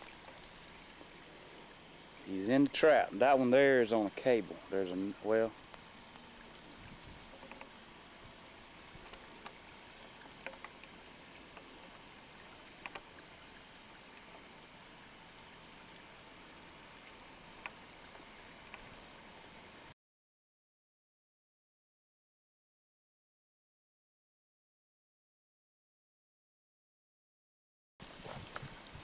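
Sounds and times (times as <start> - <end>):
small water drips: 0.0 - 3.4, 4.0 - 19.9
low water hiss: 0.0 - 20.0, 28.0 - 29.0.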